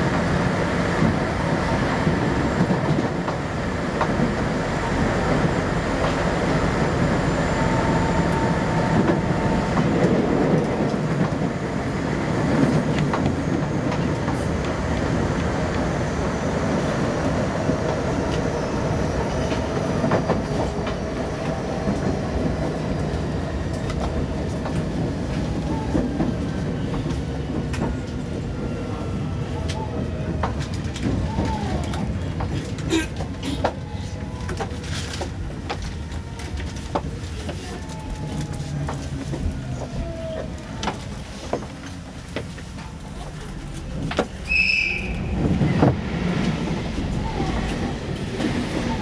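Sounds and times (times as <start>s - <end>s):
faint train whine: 0.0s - 32.6s.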